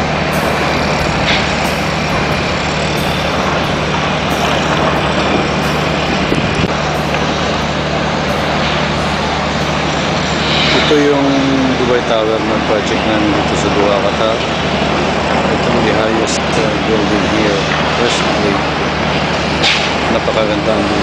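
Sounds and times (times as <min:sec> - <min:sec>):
low engine hum: 0:00.0 - 0:11.7
broad rushing noise: 0:00.0 - 0:12.7.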